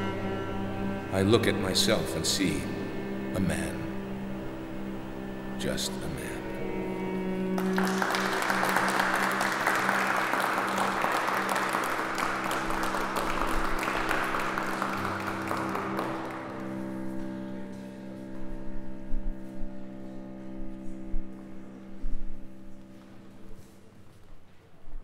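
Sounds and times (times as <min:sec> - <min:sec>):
sustained music chords: 0:00.0 - 0:23.9
applause: 0:07.6 - 0:17.3.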